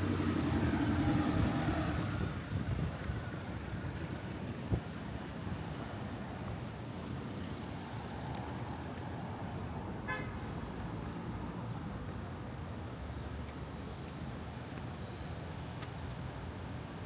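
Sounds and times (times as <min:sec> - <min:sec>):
city street traffic: 0:00.0 - 0:17.0
car horn toot: 0:10.0 - 0:10.3.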